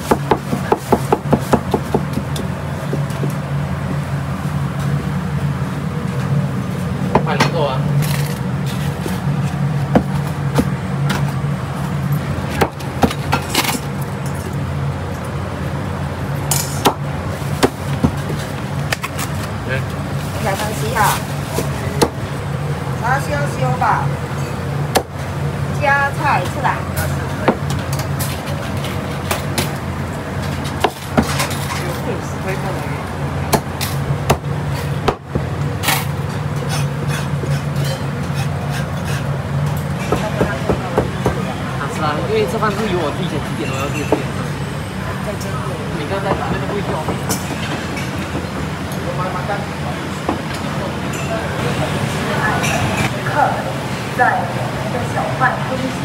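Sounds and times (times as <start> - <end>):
crockery and utensils clinking: 35.8 - 40.2, 51.1 - 51.6, 52.5 - 53.1.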